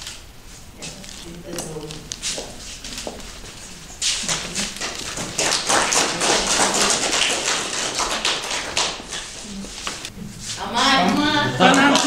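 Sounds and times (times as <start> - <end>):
audience applauding: 4.2 - 10.1, 11.6 - 12.0.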